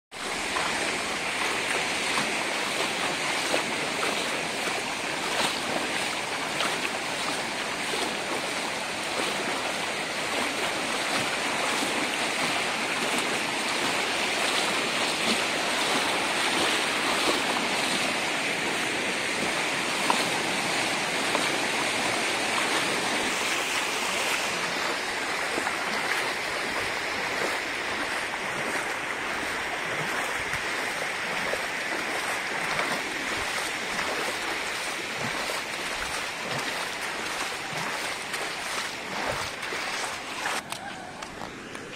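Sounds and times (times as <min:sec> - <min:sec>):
floodwater rushing: 0:00.1 - 0:41.9.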